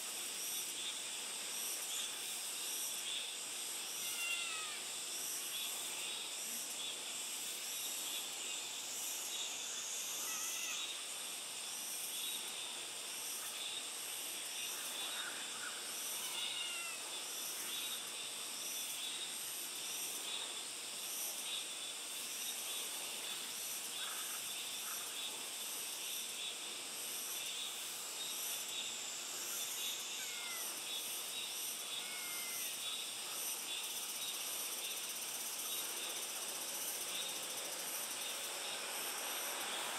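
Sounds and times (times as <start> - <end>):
insects chorus: 0.0 - 39.9
kittens meowing: 4.0 - 4.8, 10.2 - 10.8, 16.2 - 17.0, 30.1 - 30.7, 32.0 - 32.7.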